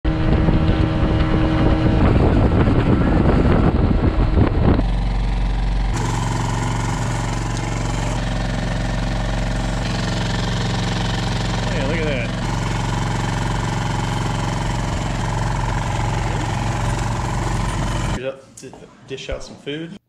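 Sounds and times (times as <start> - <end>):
outboard engine drone: 0.1 - 18.2.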